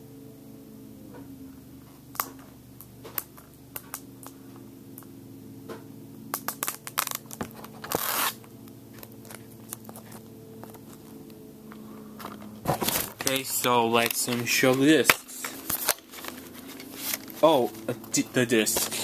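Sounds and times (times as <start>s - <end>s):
faint low hum: 0.0s - 19.0s
wrapping rustling: 6.5s - 11.2s, 11.8s - 19.0s.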